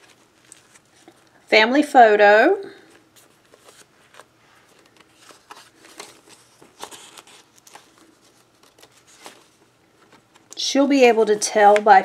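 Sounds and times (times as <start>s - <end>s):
paper pages turning: 0.0s - 1.3s, 3.1s - 10.6s.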